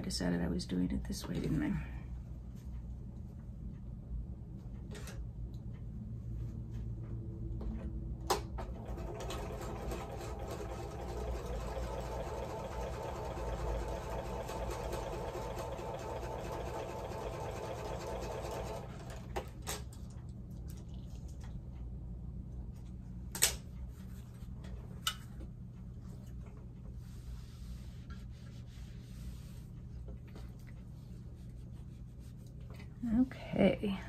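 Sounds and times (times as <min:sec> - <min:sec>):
sewing machine stitching: 0:08.6 - 0:19.5.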